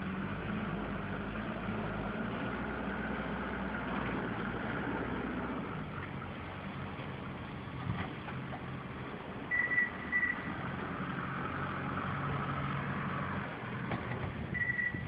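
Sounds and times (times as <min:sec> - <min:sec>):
engine running: 0:00.0 - 0:15.0
short high beeps: 0:09.5 - 0:10.5, 0:14.6 - 0:15.0.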